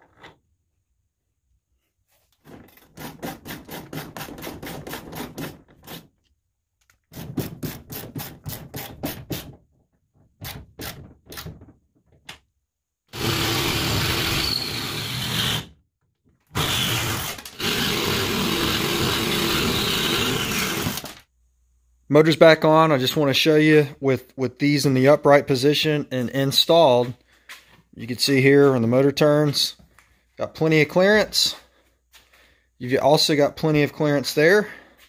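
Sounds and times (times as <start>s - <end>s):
reciprocating saw cutting wood: 16.5s - 21.1s.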